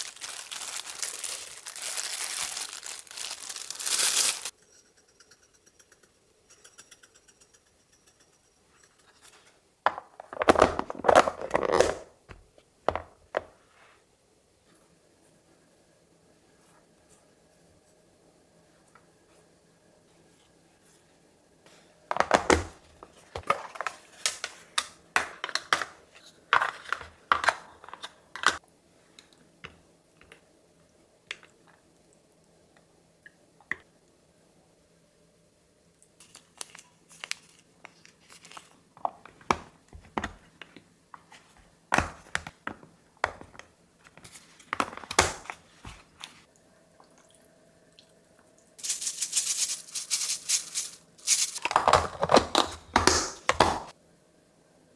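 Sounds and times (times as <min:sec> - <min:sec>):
steady hiss: 0:48.8 - 0:51.6.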